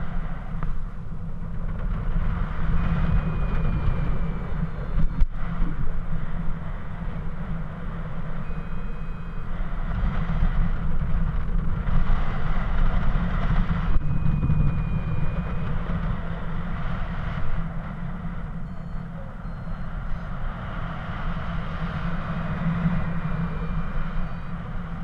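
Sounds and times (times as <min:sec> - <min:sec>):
wind buffeting microphone: 0:00.0 - 0:25.0
faint high tones: 0:06.8 - 0:09.8, 0:13.9 - 0:25.0.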